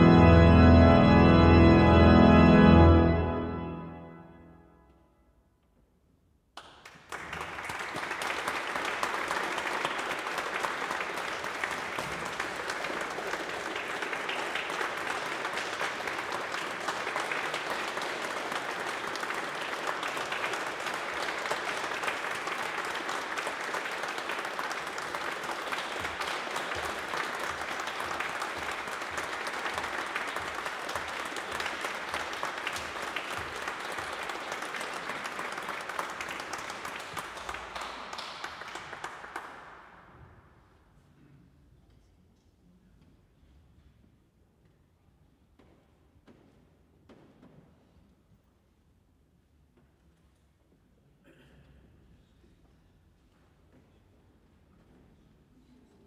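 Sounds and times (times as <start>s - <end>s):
audience applauding: 0.0s - 4.0s, 6.6s - 40.1s.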